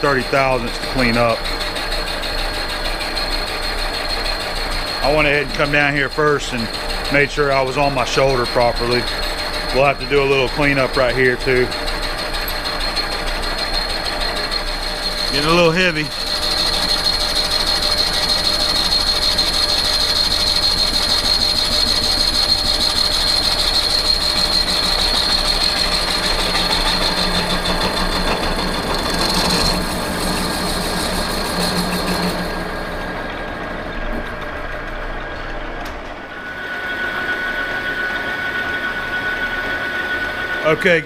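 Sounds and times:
high cutting whine: 0.0s - 41.0s
lathe running: 0.0s - 41.0s.

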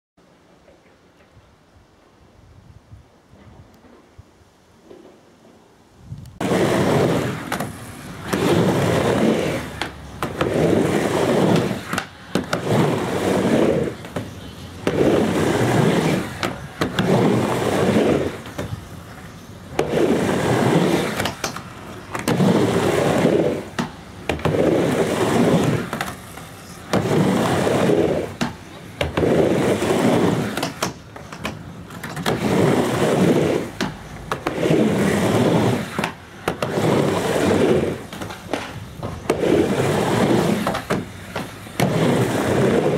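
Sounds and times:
skateboard wheels rolling on ramp: 3.2s - 42.9s
skateboard clacking on ramp edge: 21.0s - 22.5s, 30.2s - 32.4s.

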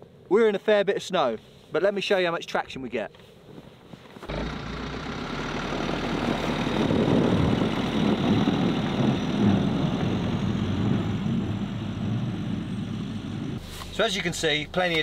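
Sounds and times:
tyres rolling over snow: 3.9s - 14.6s
van engine pulling away: 4.2s - 15.0s.

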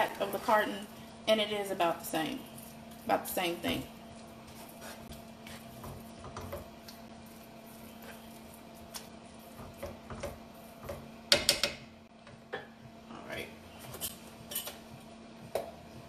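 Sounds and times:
low steady hum: 0.0s - 16.0s
utensil clacking against pan: 9.6s - 11.8s.

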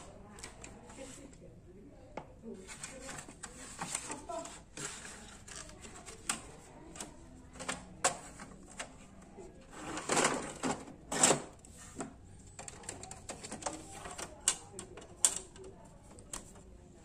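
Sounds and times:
printer tray plastic clicks and knocks: 5.5s - 9.0s.

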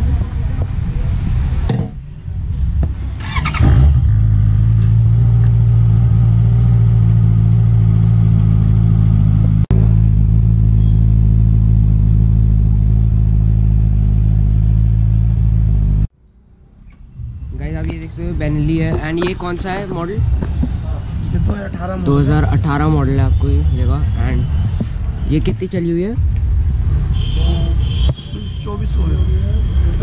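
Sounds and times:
motorcycle engine starting and idling: 3.0s - 16.1s.

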